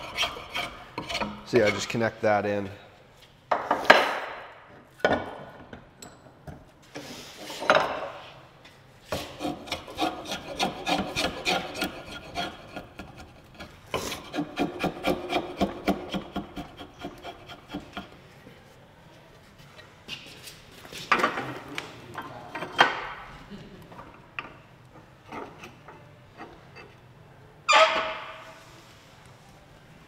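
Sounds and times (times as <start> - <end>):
hand rasp scraping wood: 0.0 - 2.0, 9.1 - 18.3.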